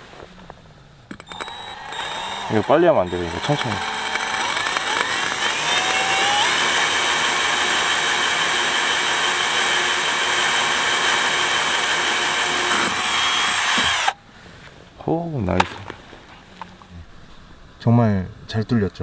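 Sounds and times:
drill bit grinding tile: 1.1s - 14.2s
drill motor whine: 1.2s - 14.2s.

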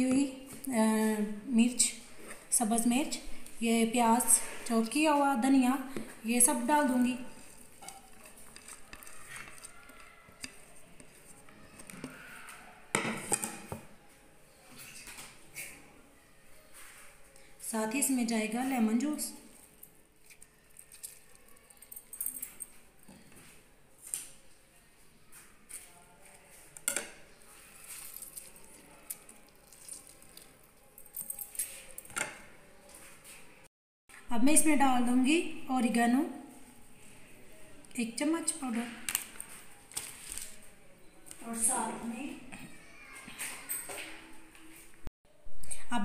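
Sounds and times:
utensils and dishes clinking: 26.8s - 32.6s.

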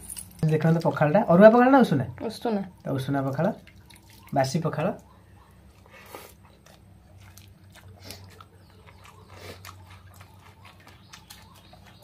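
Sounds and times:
faint chewing: 2.8s - 12.0s.

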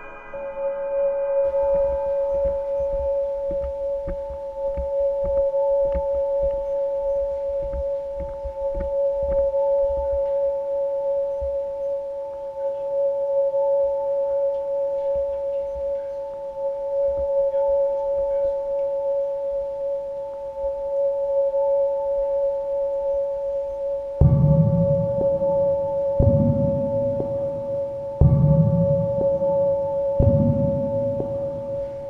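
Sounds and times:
two-tone hum: 0.0s - 32.0s
loud low rumble: 24.2s - 32.0s.

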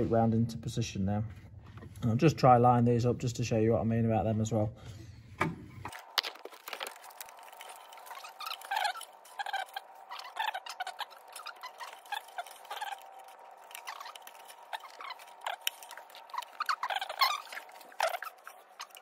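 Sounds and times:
timing belt clicks and squeaks: 6.0s - 19.0s.

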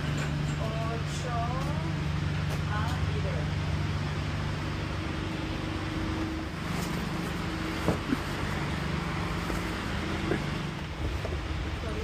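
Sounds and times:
vehicle mechanical hum: 0.0s - 12.0s.

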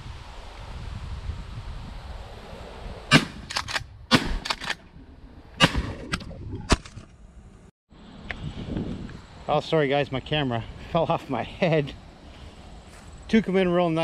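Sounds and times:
shotgun shots: 3.1s - 4.8s, 5.6s - 6.1s
quieter cracks: 3.1s - 7.2s.

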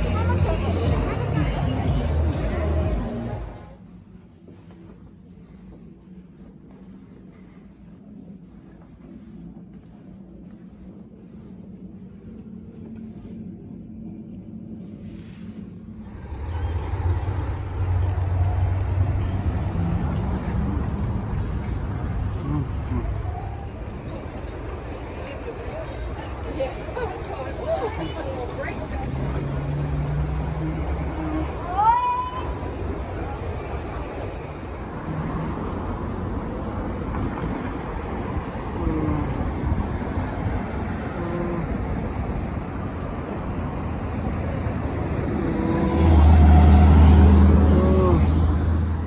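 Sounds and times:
road traffic rumble: 0.0s - 49.0s.

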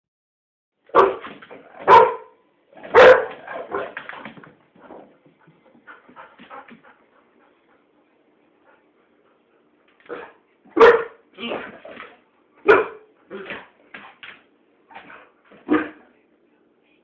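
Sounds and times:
dog barking: 0.9s - 4.0s, 10.1s - 11.2s, 12.6s - 13.7s, 15.6s - 16.0s.

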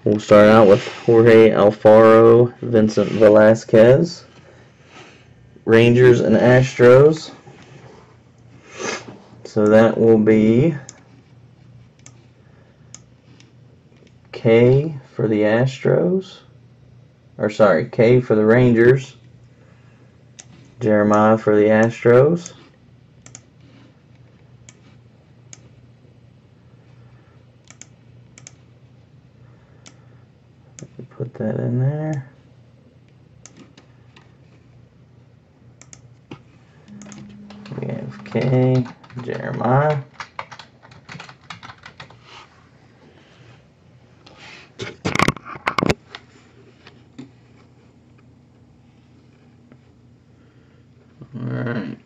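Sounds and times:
low steady hum: 0.0s - 40.9s
sharp computer clicks: 23.2s - 23.5s, 27.6s - 28.6s
keyboard typing: 36.9s - 42.2s.

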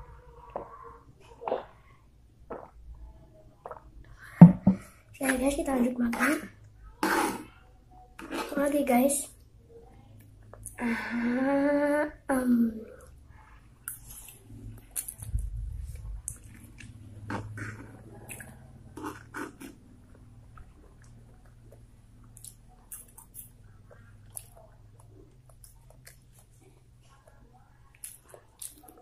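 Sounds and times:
steady low hum: 10.3s - 27.9s
person chewing food: 13.8s - 29.0s.

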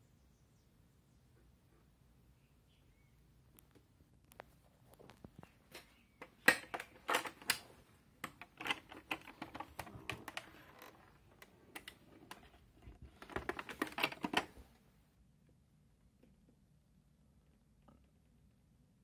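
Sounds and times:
plastic clicks and knocks: 3.6s - 14.7s.

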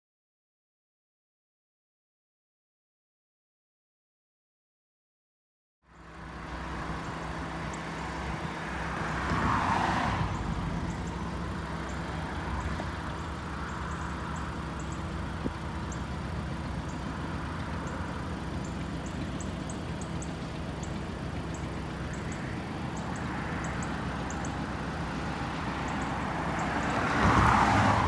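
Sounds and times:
distant diesel locomotive drone: 5.9s - 28.0s.

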